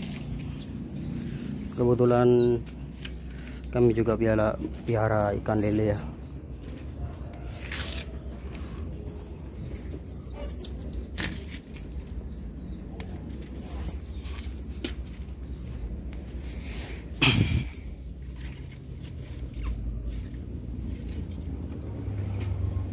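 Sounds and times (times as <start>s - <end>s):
baby otters chirping: 0.0s - 3.3s, 5.1s - 6.0s, 9.0s - 15.6s, 16.3s - 18.0s.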